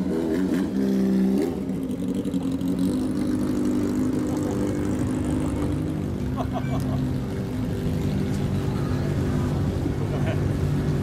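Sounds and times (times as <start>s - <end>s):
motorcycle exhaust riding off: 0.0s - 11.0s.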